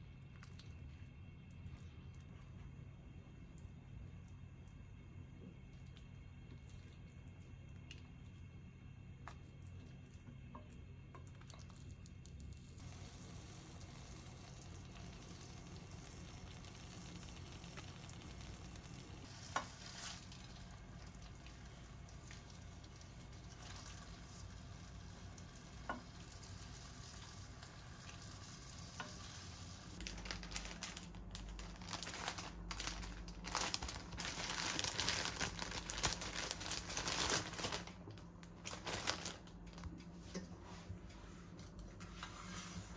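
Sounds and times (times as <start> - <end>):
fish sizzling in a frying pan: 12.8 - 21.2.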